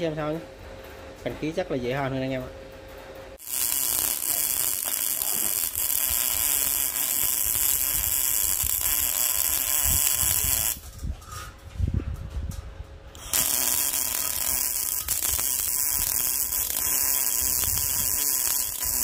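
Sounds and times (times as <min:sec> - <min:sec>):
welding arc crackling hiss: 0:03.4 - 0:10.9, 0:13.2 - 0:19.0.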